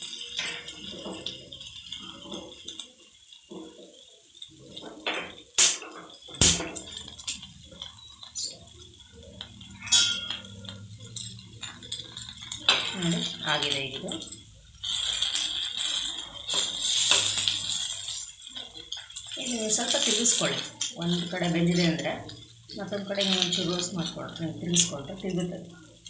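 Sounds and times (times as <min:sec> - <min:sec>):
food sizzling in a pan: 0:00.0 - 0:26.0
utensil clinking against pan: 0:09.4 - 0:21.1.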